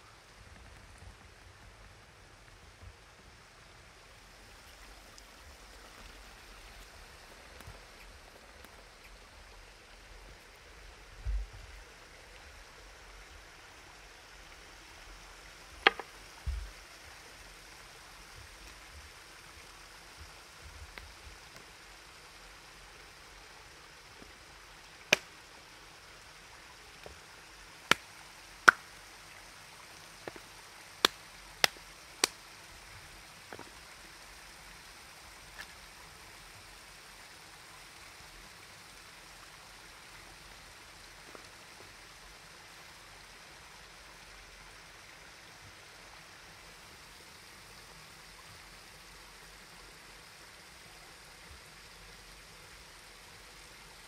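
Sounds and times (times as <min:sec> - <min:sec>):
steady background hiss: 0:00.0 - 0:54.0
sharp knocks or clicks: 0:15.8 - 0:16.7.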